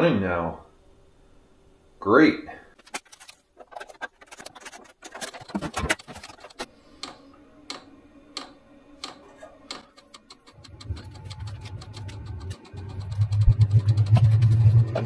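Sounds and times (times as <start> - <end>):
clicks and knocks: 2.8 - 13.5
heater pump ticking: 7.0 - 14.5.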